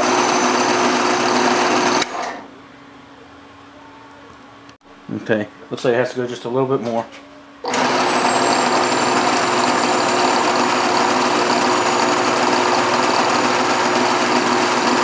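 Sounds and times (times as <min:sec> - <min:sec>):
bandsaw running: 0:00.0 - 0:02.4, 0:07.7 - 0:15.0.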